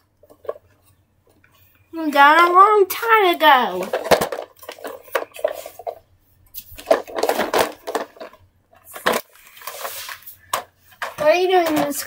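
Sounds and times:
plastic toy car rattling: 3.6s - 6.0s, 6.8s - 9.9s, 10.5s - 12.0s.

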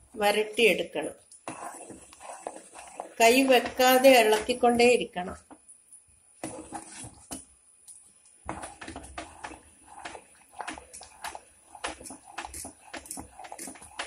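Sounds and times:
thick mixture bubbling: 0.0s - 14.0s
ladle scraping a pot: 1.4s - 4.6s, 6.4s - 7.3s, 8.5s - 14.0s.

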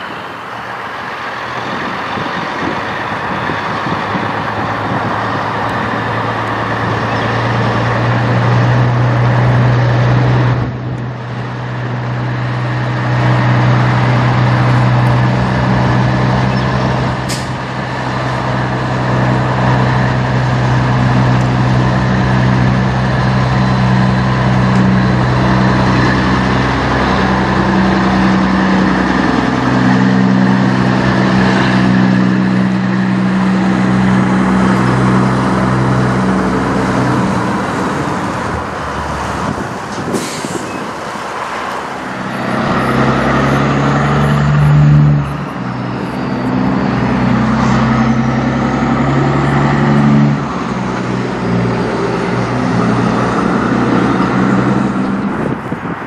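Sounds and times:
truck diesel engine droning: 0.0s - 56.0s
brief high-pitched hiss: 40.0s - 40.9s.

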